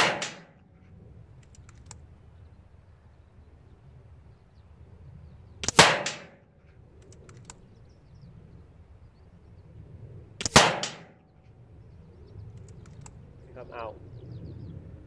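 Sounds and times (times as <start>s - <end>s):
air rifle shots: 0.0s - 0.7s, 5.6s - 6.4s, 10.4s - 11.2s
light clicks: 1.4s - 2.1s, 6.7s - 7.6s, 12.5s - 13.2s.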